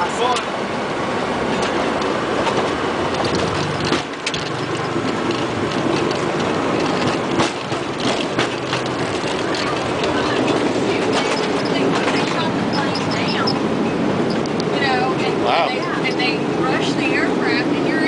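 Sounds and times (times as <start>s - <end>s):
aircraft engine and tyre rumble: 0.0s - 18.0s.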